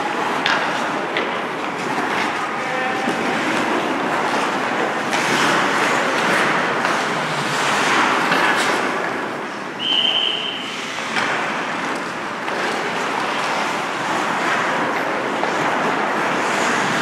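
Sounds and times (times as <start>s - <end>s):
hockey sticks and puck clacking: 0.0s - 17.0s
ice skates scraping: 0.0s - 17.0s
whistle: 9.8s - 10.7s.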